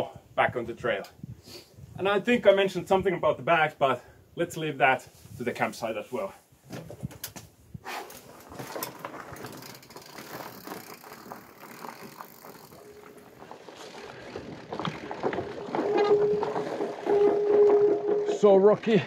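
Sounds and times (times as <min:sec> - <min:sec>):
bike tyres rolling on trail: 0:08.0 - 0:19.0
bike rattling and knocking: 0:08.1 - 0:18.6.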